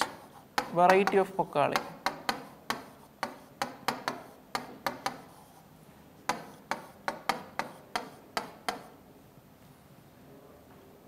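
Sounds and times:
marker tapping on whiteboard: 0:00.0 - 0:05.4, 0:06.2 - 0:09.0.

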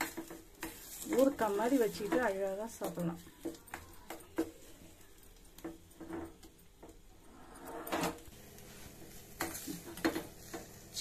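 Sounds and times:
spoon scraping steel pan: 0:00.0 - 0:04.4.

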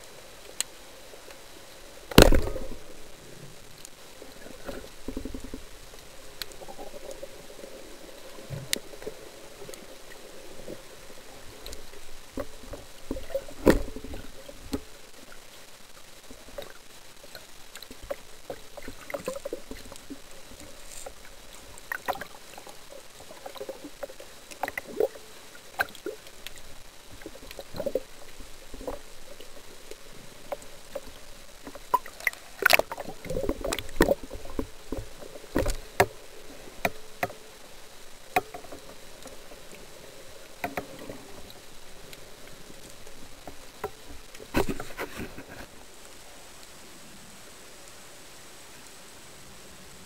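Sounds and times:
low murmur of water: 0:00.0 - 0:50.0
underwater clicks and knocks: 0:02.1 - 0:03.0, 0:04.5 - 0:05.8, 0:11.5 - 0:15.4, 0:25.8 - 0:37.5, 0:38.3 - 0:39.7, 0:40.5 - 0:45.7.

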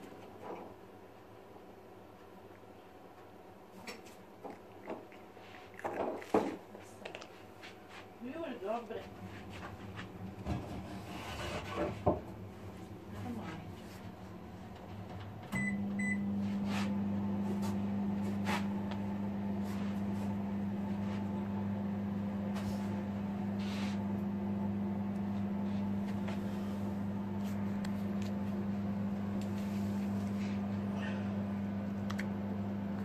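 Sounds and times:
microwave humming: 0:09.1 - 0:33.0
microwave beeps: 0:15.5 - 0:16.4.

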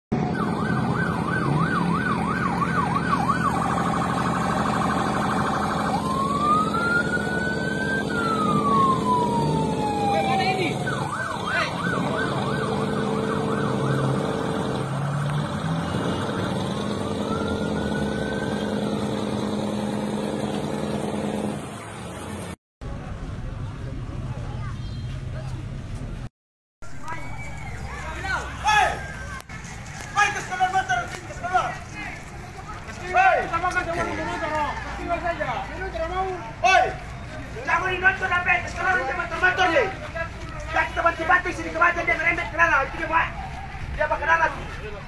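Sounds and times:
electronic emergency siren: 0:00.1 - 0:21.8, 0:26.8 - 0:30.1.

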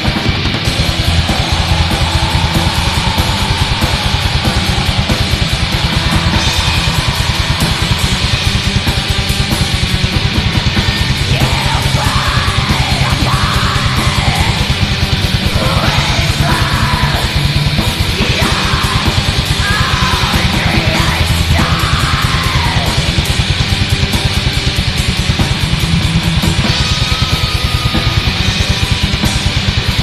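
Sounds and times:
harsh screamed vocals: 0:00.0 - 0:23.8
distorted guitars: 0:00.0 - 0:30.0
rapid drumming: 0:00.0 - 0:30.0.

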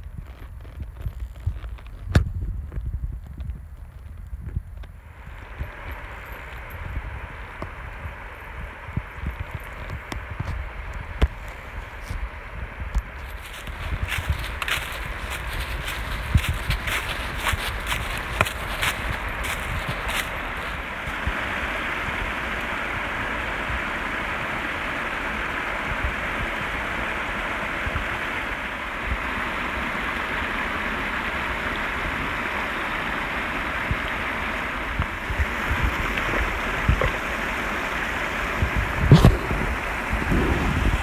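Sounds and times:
creek running over rocks: 0:05.0 - 0:41.0
loud thump: 0:39.1 - 0:39.7.

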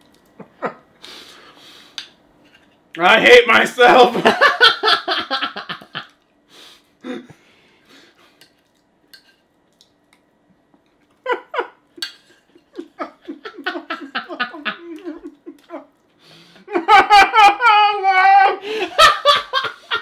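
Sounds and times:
people laughing: 0:04.0 - 0:06.1, 0:11.2 - 0:11.8, 0:12.4 - 0:15.9, 0:16.6 - 0:20.0
fork clicking and scraping on plate: 0:08.4 - 0:10.2, 0:12.0 - 0:12.8.

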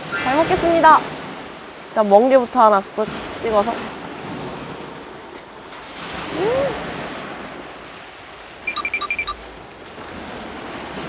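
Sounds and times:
sea waves washing on shore: 0:00.0 - 0:11.0
wind on microphone: 0:06.0 - 0:07.9
person humming: 0:06.3 - 0:06.9
short high electronic beeps: 0:08.7 - 0:09.4.

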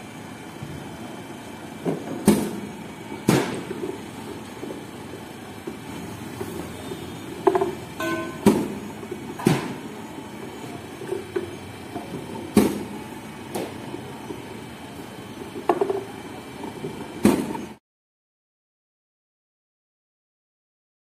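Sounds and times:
bowling machine running: 0:00.0 - 0:17.8
sharp knocks of balls fed: 0:07.4 - 0:08.8.

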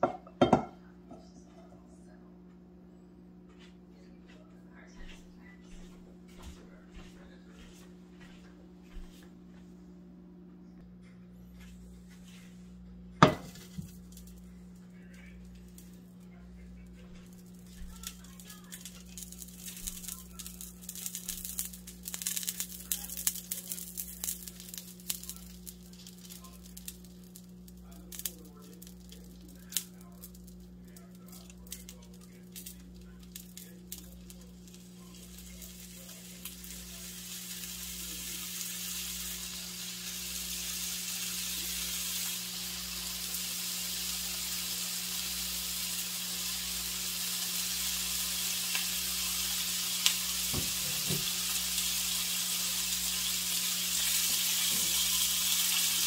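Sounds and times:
steady low hum: 0:00.0 - 0:56.0
bacon sizzling in a pan: 0:13.2 - 0:14.4, 0:17.0 - 0:56.0.

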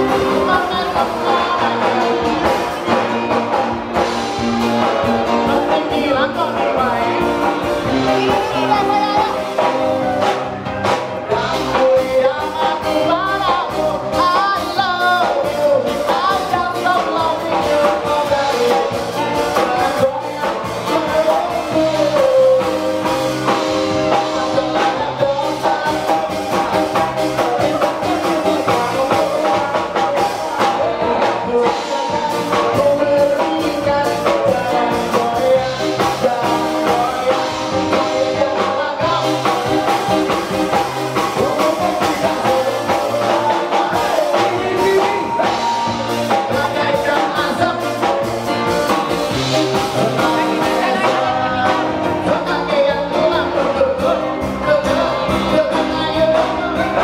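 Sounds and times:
woman singing pop song: 0:00.0 - 0:02.4, 0:05.3 - 0:10.0, 0:11.4 - 0:22.8, 0:49.6 - 0:57.0
instrumental backing with drums: 0:00.0 - 0:57.0.

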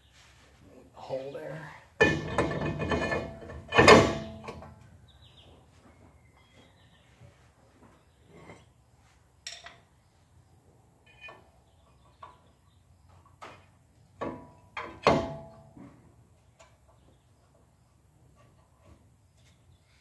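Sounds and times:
metal clanks ringing: 0:02.0 - 0:04.8, 0:14.3 - 0:15.9
metal clinks and knocks: 0:02.0 - 0:04.8.

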